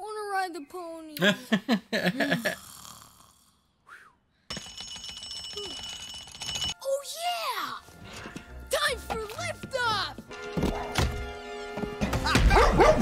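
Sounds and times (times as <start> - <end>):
laughter: 1.2 - 2.6
bell alarm clock ringing: 4.5 - 6.8.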